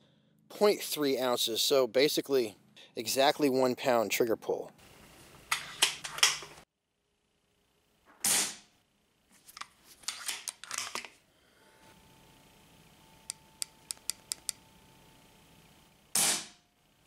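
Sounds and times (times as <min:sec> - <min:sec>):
gun handling clicks and rattles: 0:09.6 - 0:11.2
air rifle shot: 0:16.2 - 0:16.6.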